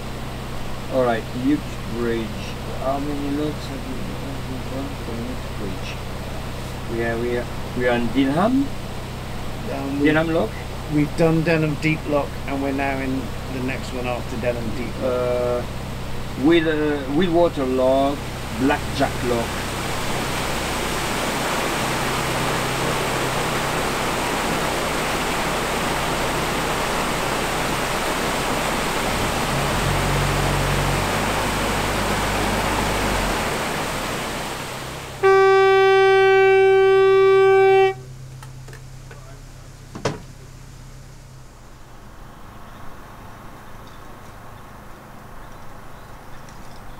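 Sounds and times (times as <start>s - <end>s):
water gushing into lock chamber: 10.4s - 36.3s
horn blast: 29.1s - 38.3s.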